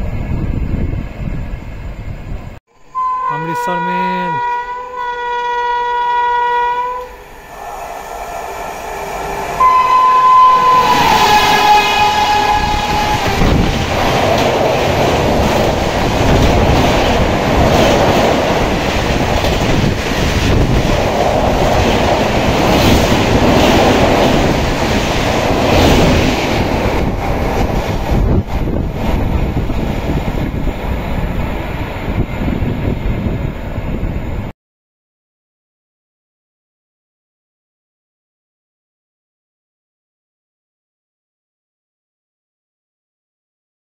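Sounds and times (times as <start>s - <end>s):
locomotive horn blast: 2.9s - 8.0s, 9.6s - 13.9s
train wheel clatter: 12.0s - 33.4s.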